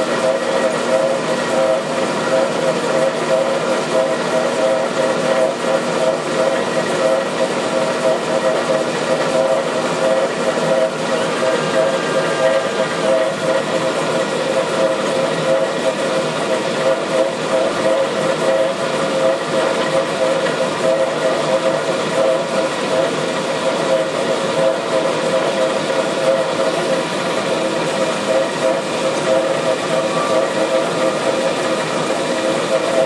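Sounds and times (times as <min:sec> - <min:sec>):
two-tone hum: 0:09.3 - 0:15.8.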